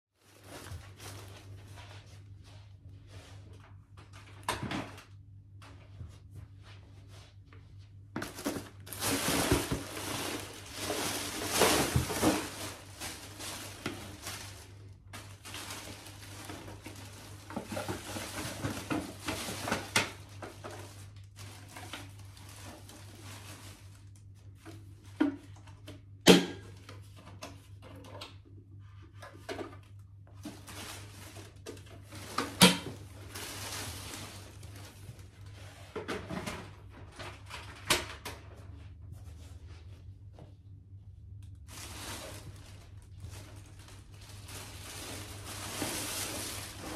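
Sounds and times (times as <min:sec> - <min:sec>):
rustling and clattering: 0:08.1 - 0:25.6, 0:41.7 - 0:46.9.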